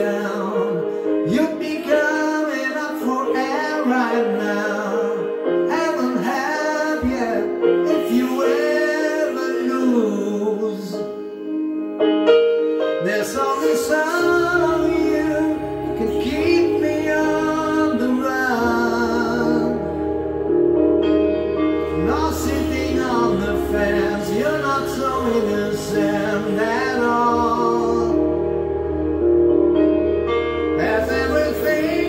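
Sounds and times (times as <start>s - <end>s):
man singing into microphone: 0.0s - 11.6s, 12.9s - 20.1s, 21.8s - 28.6s, 30.8s - 32.0s
backing track of sustained chords: 11.0s - 32.0s
deep bass line: 13.4s - 32.0s.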